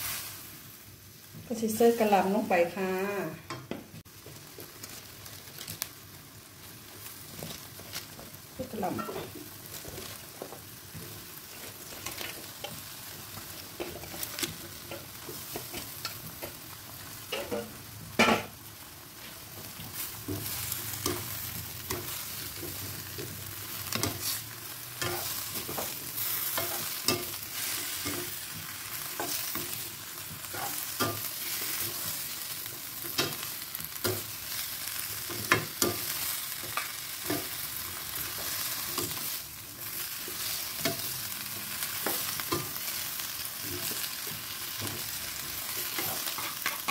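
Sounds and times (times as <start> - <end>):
food sizzling: 0.0 - 46.9
utensils scraping a wok: 7.0 - 18.5, 19.1 - 46.9.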